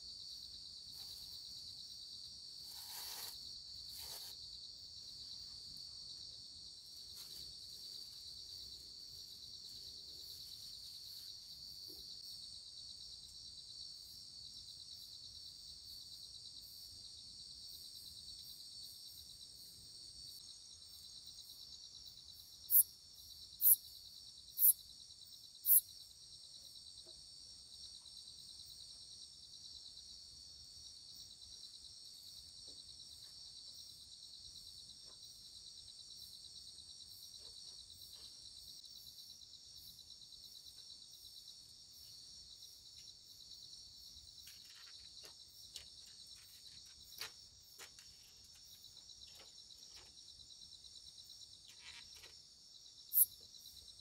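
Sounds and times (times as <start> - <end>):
crickets trilling: 20.3 - 26.8, 33.1 - 54.0.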